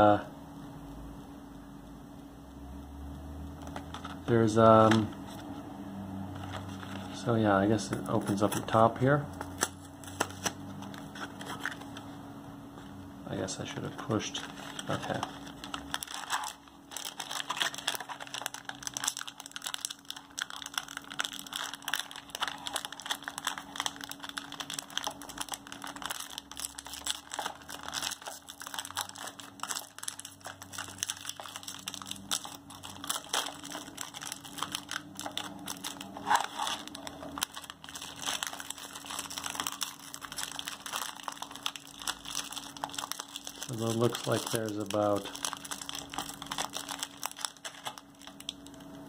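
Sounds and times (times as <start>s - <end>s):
foil snack pouch crinkling: 14.0s - 48.9s.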